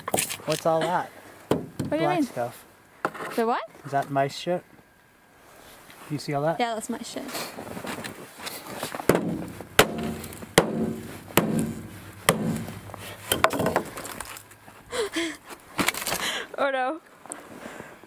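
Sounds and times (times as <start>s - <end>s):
axe striking frozen fish: 9.1s - 13.7s.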